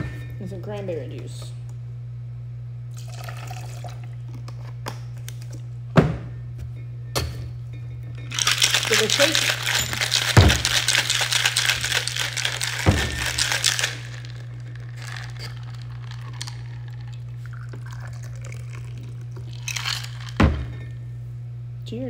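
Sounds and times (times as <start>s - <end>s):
liquid pouring into glass: 2.9s - 4.3s, 8.3s - 20.7s
cocktail shaker rattling: 8.2s - 20.5s
shaker being opened: 8.3s - 20.4s.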